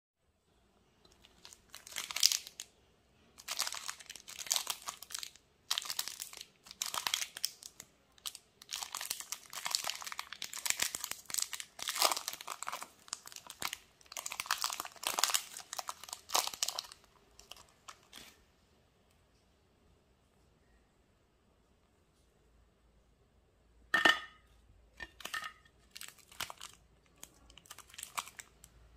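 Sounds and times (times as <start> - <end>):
plastic wrapper crinkling and tearing: 1.1 - 2.7, 3.4 - 18.4, 25.0 - 28.9.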